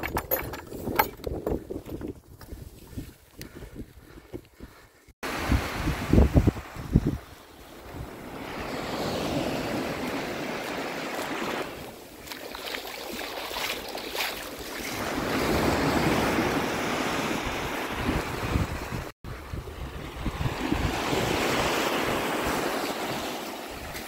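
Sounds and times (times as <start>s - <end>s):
wind rumbling on microphone: 0.0s - 10.8s, 14.9s - 24.0s
small waves washing on shore: 5.2s - 24.0s.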